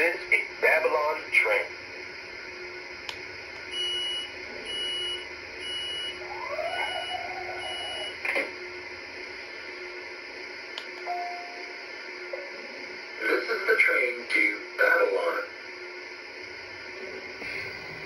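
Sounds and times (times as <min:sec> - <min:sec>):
click: 0:03.1 - 0:03.7, 0:10.8 - 0:11.1
high electronic beeps: 0:03.7 - 0:08.2.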